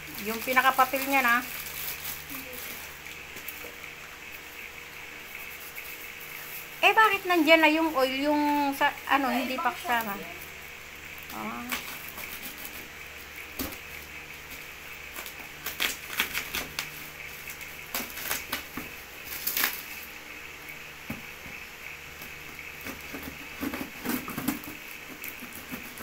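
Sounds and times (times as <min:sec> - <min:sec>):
plastic wrapping crinkling and tearing: 0:00.0 - 0:03.7, 0:15.1 - 0:20.1
scissors scraping packing tape: 0:11.3 - 0:12.9, 0:15.1 - 0:18.7, 0:19.3 - 0:20.0, 0:22.8 - 0:26.0.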